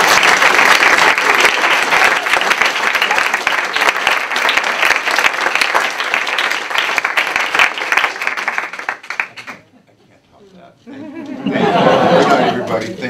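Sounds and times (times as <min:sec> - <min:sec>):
audience applauding: 0:00.0 - 0:09.7.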